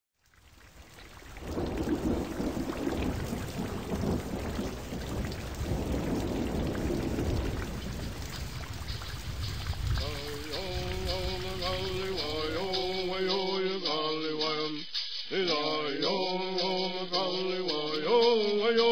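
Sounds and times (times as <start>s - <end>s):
falling rain hiss: 0.2s - 18.1s
low rumbling thunder: 1.2s - 13.2s.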